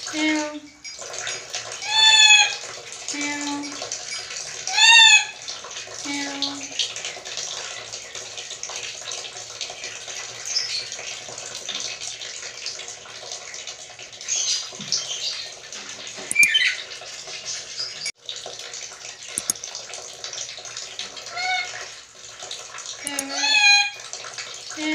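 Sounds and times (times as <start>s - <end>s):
parrot squeaky calls: 1.8s - 2.6s, 4.7s - 5.3s, 16.3s - 16.8s, 21.3s - 21.8s, 23.1s - 24.0s.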